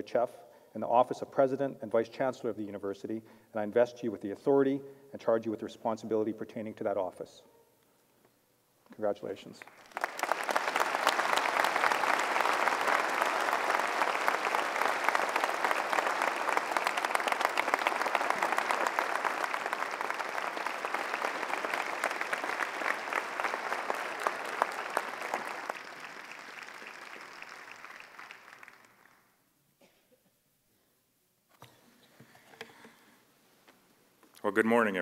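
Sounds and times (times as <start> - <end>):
large audience applauding: 9.6 - 29.3.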